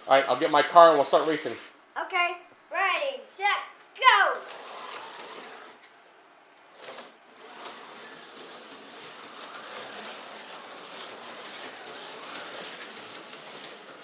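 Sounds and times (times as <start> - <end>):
slot car motors whirring: 4.4 - 5.9, 6.6 - 14.0.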